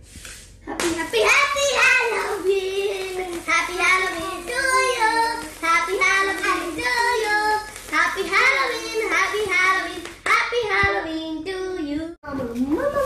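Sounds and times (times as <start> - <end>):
children singing: 1.2 - 9.8.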